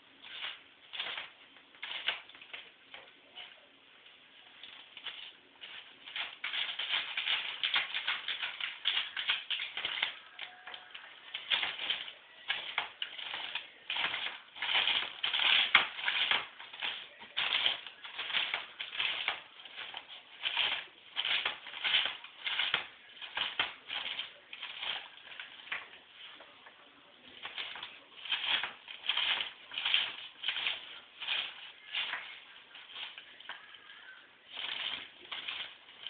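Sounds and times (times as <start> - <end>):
newspaper rustling and crinkling: 4.6 - 36.0.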